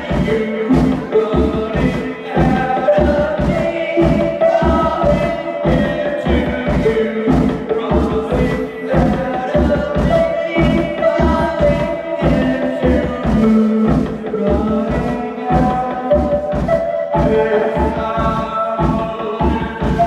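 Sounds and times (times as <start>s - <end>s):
live band music with singing: 0.0s - 20.0s
steady drum beat: 0.0s - 20.0s.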